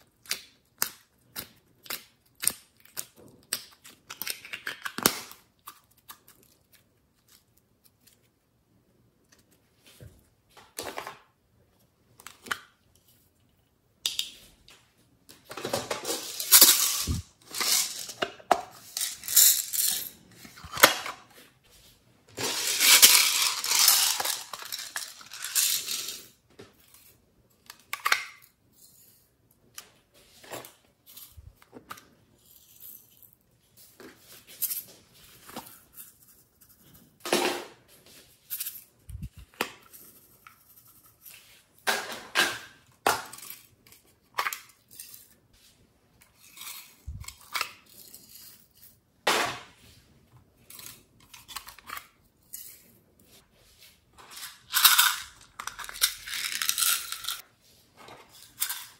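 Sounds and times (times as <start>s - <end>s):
containers clicking and clinking: 15.5s - 21.3s, 22.4s - 26.3s, 54.2s - 57.4s
plastic beads pouring rattling: 16.0s - 20.1s, 22.4s - 26.3s.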